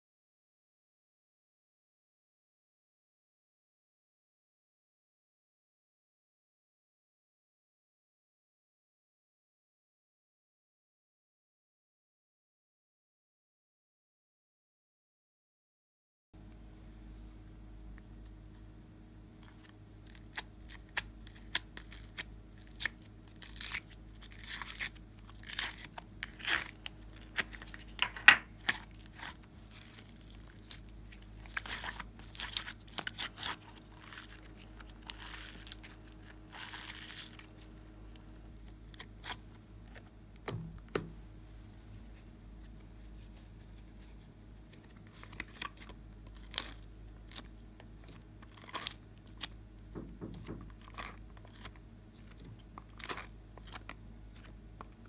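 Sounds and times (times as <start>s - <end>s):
slime crackling and peeling: 20.0s - 28.0s, 28.6s - 37.7s, 38.6s - 40.6s, 45.4s - 49.6s, 50.7s - 54.5s.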